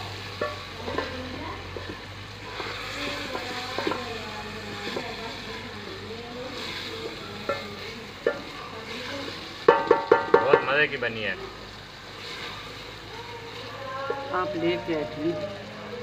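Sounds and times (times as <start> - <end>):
curry sizzling: 0.0 - 16.0
spoon knocking against a pot: 9.7 - 10.6.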